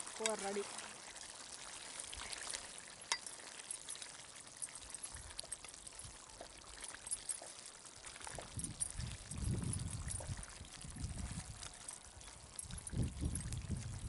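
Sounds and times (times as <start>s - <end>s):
thick gravy bubbling: 0.0s - 14.0s.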